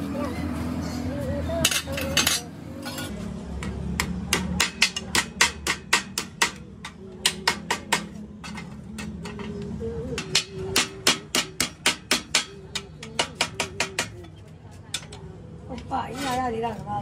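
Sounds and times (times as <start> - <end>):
hammer striking steel: 4.0 - 9.4, 10.2 - 14.3.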